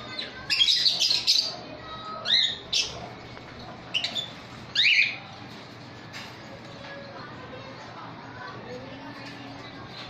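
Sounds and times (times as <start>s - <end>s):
lovebirds shrill calls: 0.1s - 1.6s, 3.9s - 5.2s.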